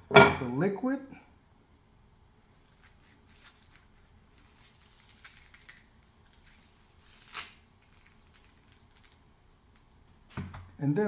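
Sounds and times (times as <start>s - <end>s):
cheesecloth bundle being wrung out: 2.5s - 10.4s
juice dripping onto glass plate: 4.4s - 10.3s.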